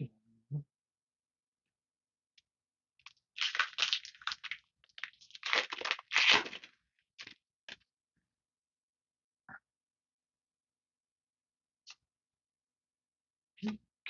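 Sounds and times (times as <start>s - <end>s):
foil wrapper crinkling and tearing: 3.0s - 7.4s.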